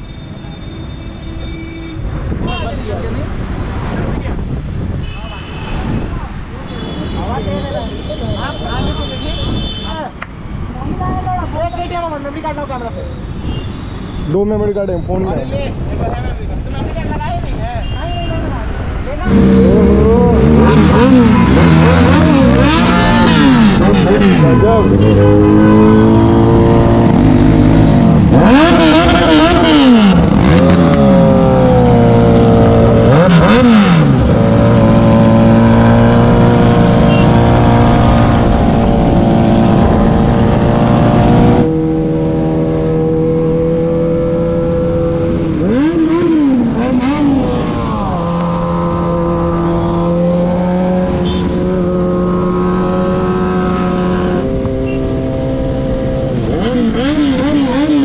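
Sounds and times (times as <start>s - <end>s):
motorcycle engines revving: 18.4s - 58.0s.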